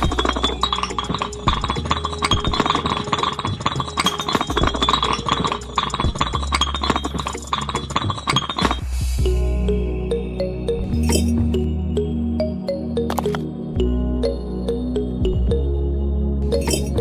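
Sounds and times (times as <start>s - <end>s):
small clay bricks clinking: 0.0s - 8.9s, 16.6s - 17.0s
background music: 0.0s - 17.0s.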